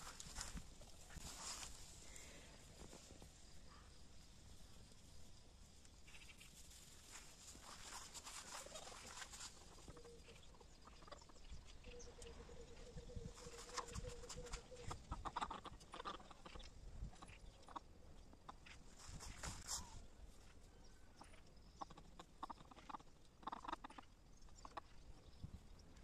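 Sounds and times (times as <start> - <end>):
footsteps in grass: 0.0 - 3.4, 6.0 - 10.0
hens clucking: 8.4 - 18.9, 21.2 - 25.0.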